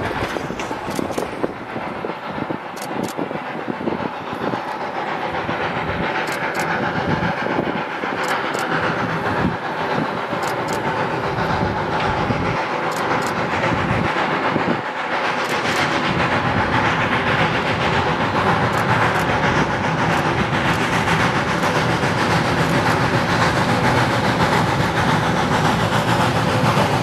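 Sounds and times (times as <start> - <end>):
steam locomotive chuffing: 0.0 - 27.0
sharp clicks: 0.6 - 1.3, 10.4 - 10.8.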